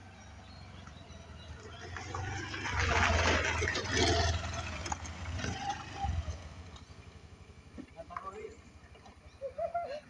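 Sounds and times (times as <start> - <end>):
motor scooter riding past: 0.0 - 7.8.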